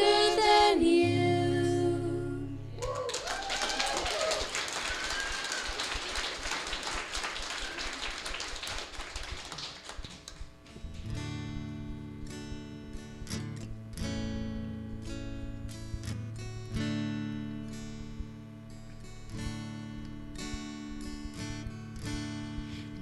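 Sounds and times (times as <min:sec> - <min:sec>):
acoustic guitar strumming chords: 0:00.0 - 0:02.7, 0:10.4 - 0:23.0
congregation applauding: 0:02.8 - 0:10.5.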